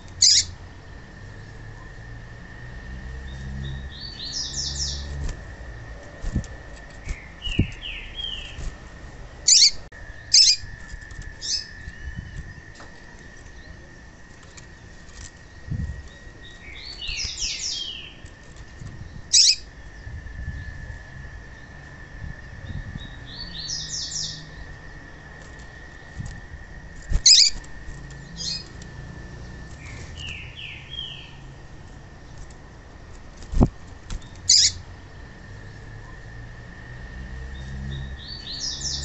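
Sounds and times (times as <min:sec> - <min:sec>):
bird chirping: 0:00.0 - 0:00.6, 0:03.2 - 0:05.2, 0:05.9 - 0:18.4, 0:19.0 - 0:20.8, 0:22.6 - 0:25.5, 0:27.1 - 0:31.5, 0:34.2 - 0:35.3, 0:37.5 - 0:39.0
bird hopping in cage: 0:04.7 - 0:13.6, 0:25.4 - 0:31.1.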